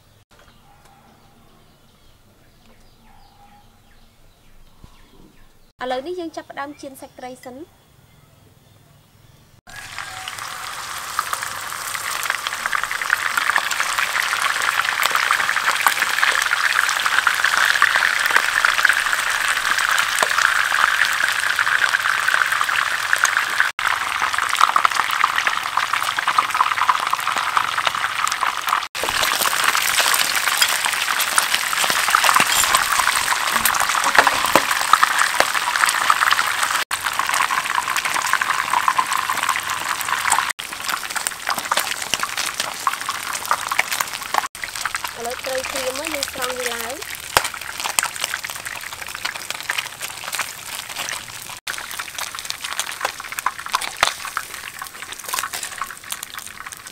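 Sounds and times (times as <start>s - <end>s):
fish sizzling in hot oil: 9.7s - 56.9s.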